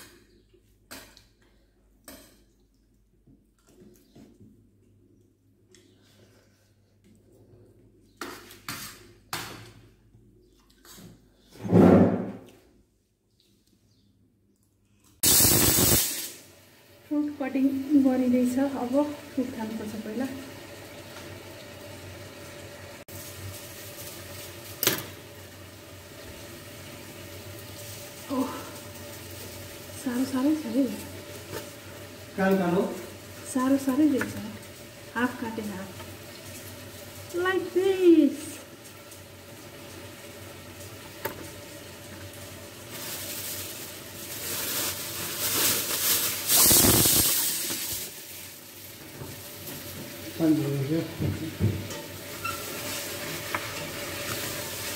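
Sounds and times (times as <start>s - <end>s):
rustling crinkling handling noise: 41.4s - 50.2s.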